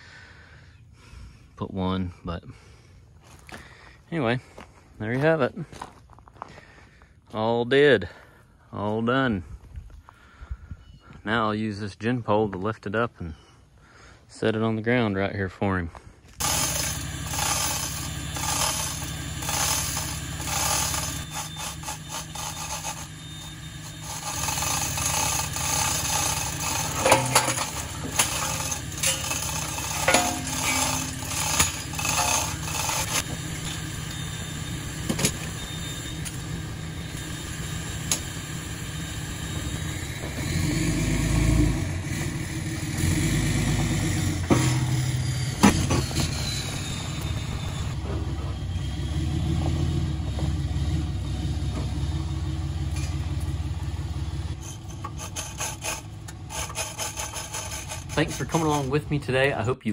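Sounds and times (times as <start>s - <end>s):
engine running: 16.3s - 59.7s
metal clanks: 16.4s - 33.2s, 44.4s - 47.3s, 54.5s - 58.8s.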